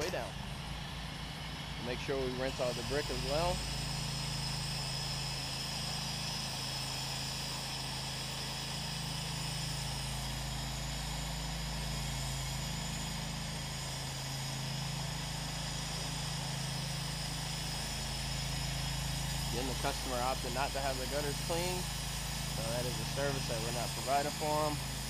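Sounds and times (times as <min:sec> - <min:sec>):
pressure washer engine running: 0:00.0 - 0:25.0.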